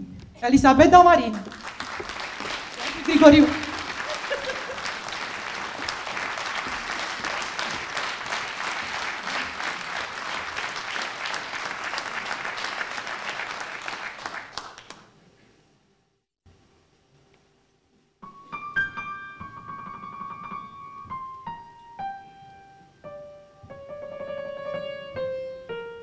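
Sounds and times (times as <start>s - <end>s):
audience applauding: 1.3s - 15.1s.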